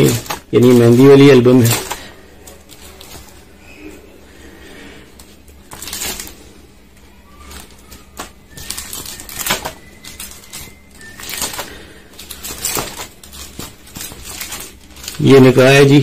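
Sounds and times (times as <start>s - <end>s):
photo album pages rustling: 0.0s - 3.7s, 4.3s - 16.0s.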